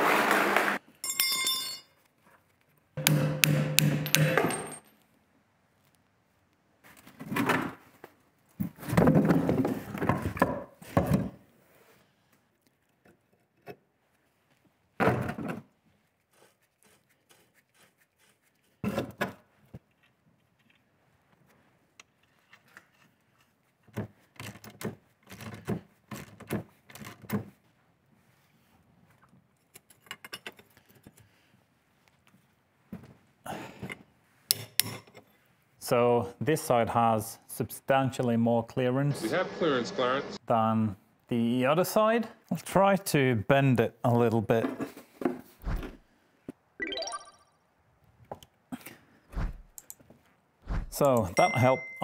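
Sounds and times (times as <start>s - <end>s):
metal knocks and clanks: 3.0s - 4.9s.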